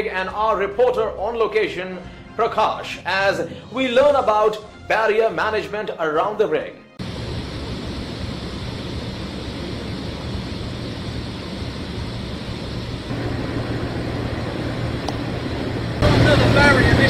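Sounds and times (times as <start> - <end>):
broad rush of machinery noise: 7.0 - 17.0
low engine-like machinery hum: 7.0 - 17.0.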